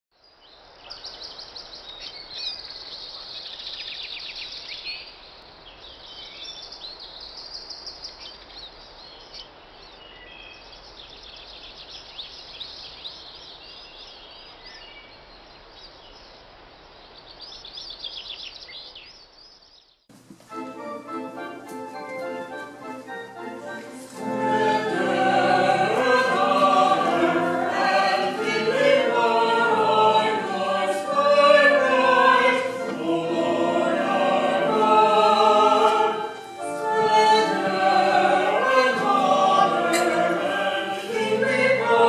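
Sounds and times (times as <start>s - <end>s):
background hiss: 0.2s - 42.0s
birds chirping and singing: 17.3s - 20.0s
organ: 20.1s - 42.0s
choir singing: 20.8s - 42.0s.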